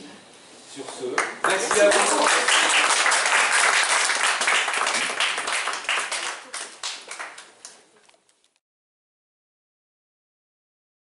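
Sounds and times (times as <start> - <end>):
audience applauding: 1.2 - 7.9.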